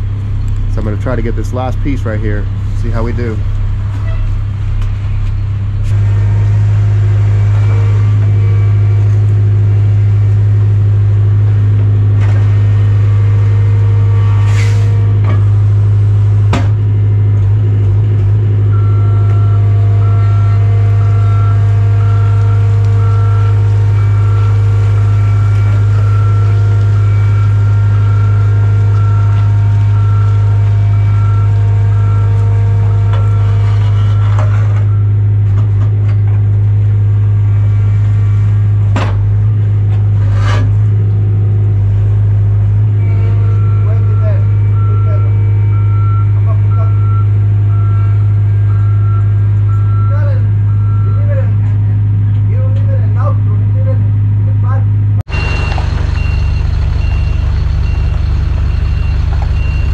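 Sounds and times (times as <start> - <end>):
machine engine running: 0.0 - 43.8, 55.3 - 59.9
faint repeating beep: 43.1 - 51.4, 55.3 - 59.9.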